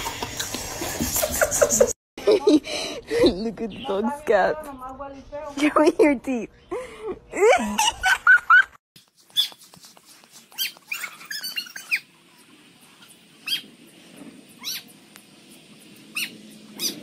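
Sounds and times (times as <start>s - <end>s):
dog whining: 10.6s - 12.1s, 16.1s - 17.0s.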